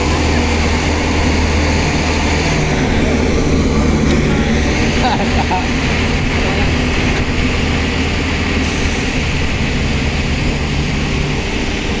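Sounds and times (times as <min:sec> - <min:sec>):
diesel engine droning: 0:00.0 - 0:12.0.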